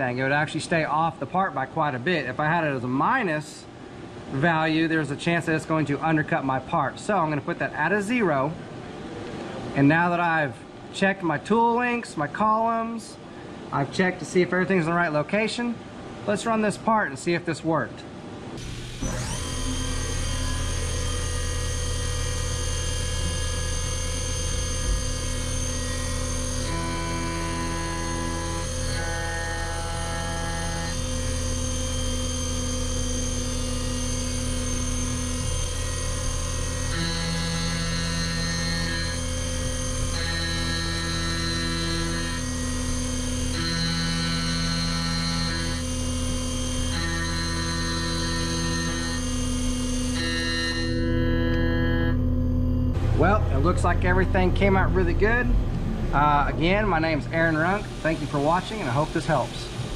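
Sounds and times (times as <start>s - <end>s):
high cutting tone: 18.6s - 59.8s
milling machine spindle whine: 18.6s - 59.9s.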